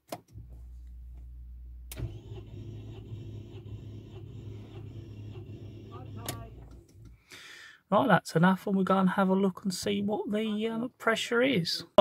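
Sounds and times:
engine cranking on starter motor: 1.9s - 7.2s.

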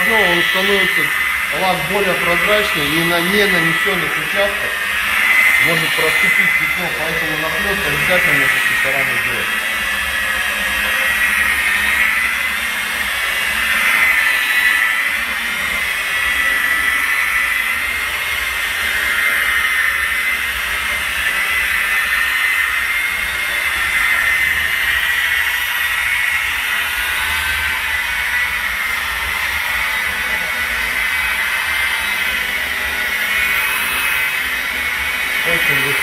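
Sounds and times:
electric polisher motor whine: 0.0s - 36.0s.

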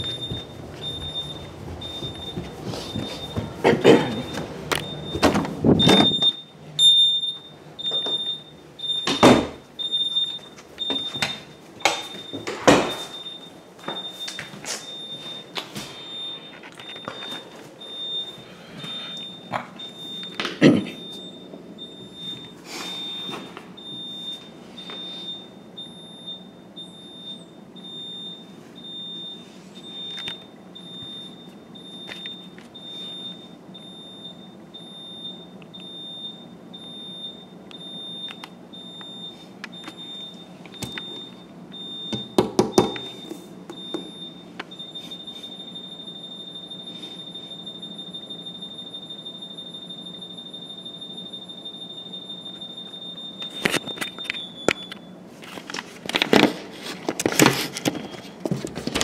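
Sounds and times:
keypad beeper beeping: 4.1s - 20.4s.

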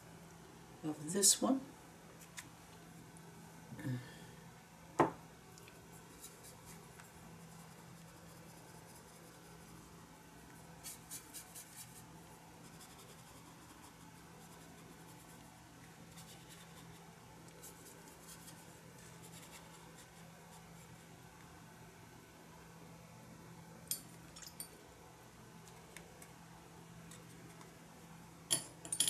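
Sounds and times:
faint low hum: 0.0s - 29.0s
brush dabbing on paper: 5.8s - 21.1s.

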